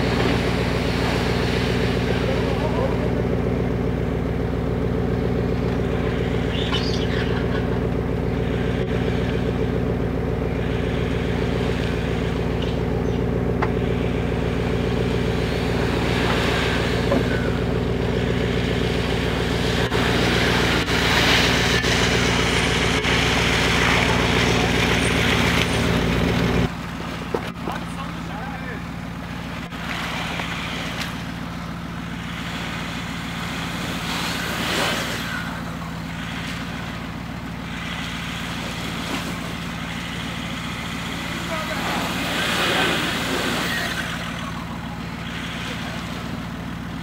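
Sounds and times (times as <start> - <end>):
engine running at low revs: 0.0 - 47.0.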